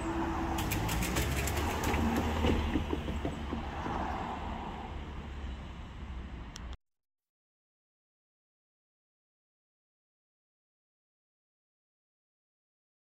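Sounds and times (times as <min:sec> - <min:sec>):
sharp clicks: 0:00.6 - 0:02.4.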